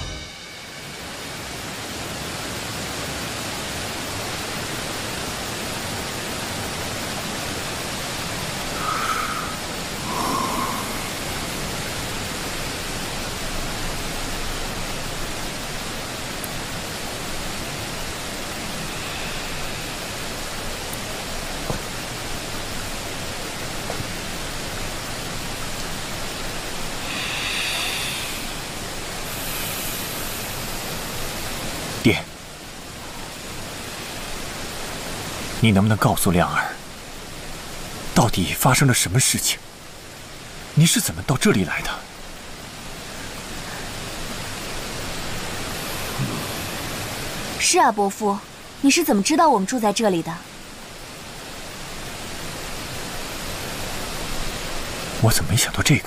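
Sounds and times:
brief high-pitched sound: 0.0 - 1.4
faint high shimmer: 0.0 - 2.2
steady rushing noise: 0.0 - 56.0.

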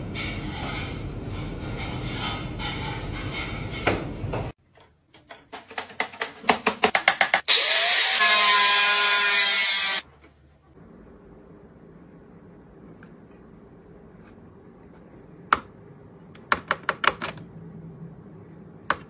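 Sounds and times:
angle grinder cutting: 7.5 - 10.1.

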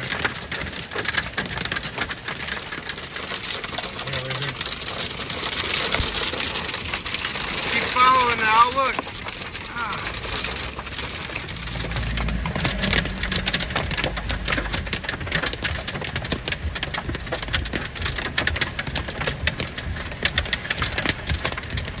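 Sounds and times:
hail and rain on car roof: 0.0 - 22.0.

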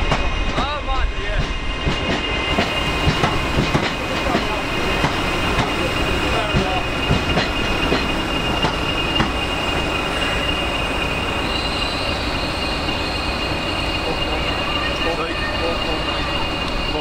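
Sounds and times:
train rumble: 0.0 - 17.0
train wheels squealing: 0.0 - 17.0
wheels clicking over rail joints: 1.4 - 9.6.

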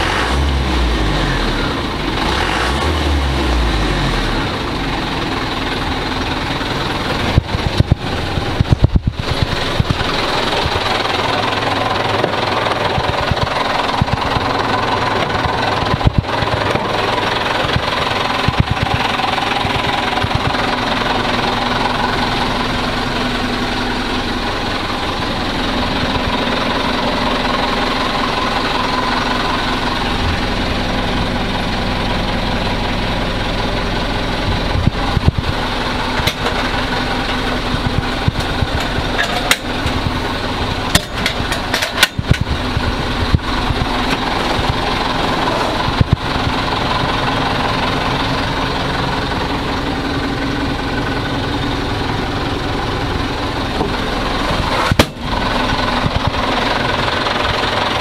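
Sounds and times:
truck engine idling: 0.0 - 58.0
sharp clicks and knocks: 37.3 - 40.2, 40.9 - 44.8.

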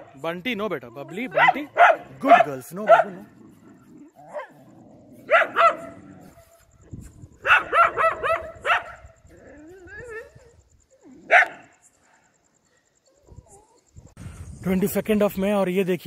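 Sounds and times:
dogs barking: 0.9 - 6.8, 7.4 - 10.3, 11.0 - 11.8.

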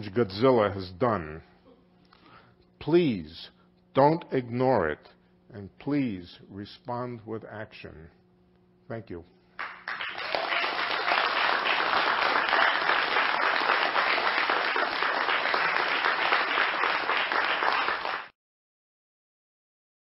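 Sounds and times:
crowd applause: 9.6 - 18.3.

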